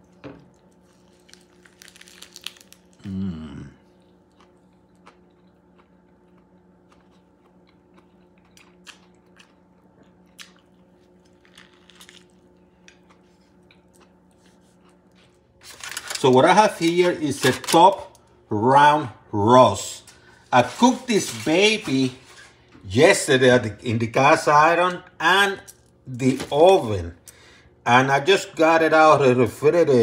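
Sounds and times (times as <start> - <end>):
steady low hum: 0.0 - 30.0
man's voice murmuring: 3.0 - 3.8.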